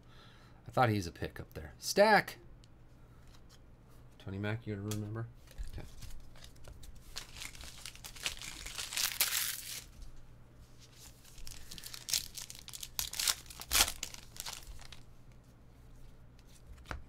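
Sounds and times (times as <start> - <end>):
card pack wrappers tearing: 5.5 - 9.9, 11.2 - 15.0.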